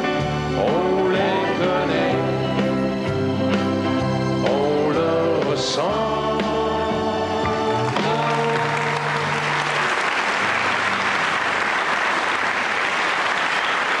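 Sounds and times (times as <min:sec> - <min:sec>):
audience applauding: 0:07.8 - 0:14.0.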